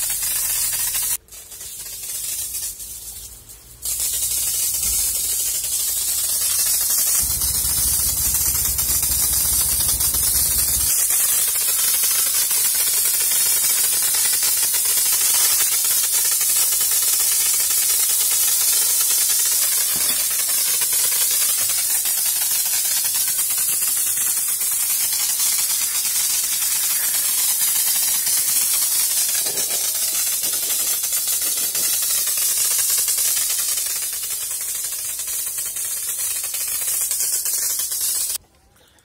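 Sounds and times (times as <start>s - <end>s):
pressure washer water jet hissing: 0.0s - 38.4s
low hum: 4.8s - 11.1s.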